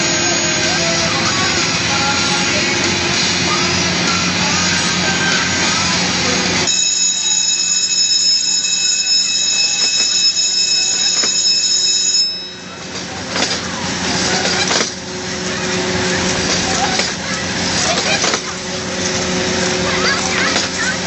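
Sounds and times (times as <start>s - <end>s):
fairground rides running: 0.0s - 21.0s
high-pitched alarm tone: 6.6s - 12.9s.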